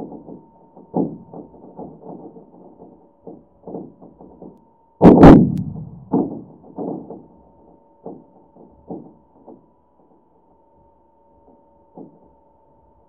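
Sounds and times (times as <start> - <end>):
sharp boom into rumble: 5.0 - 6.6
soft seismic thuds and pops: 5.0 - 7.2.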